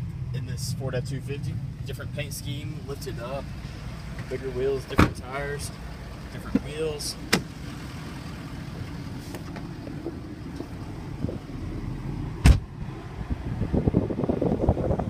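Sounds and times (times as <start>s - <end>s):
car door thump: 4.9s - 5.2s, 6.5s - 7.5s, 12.4s - 12.7s.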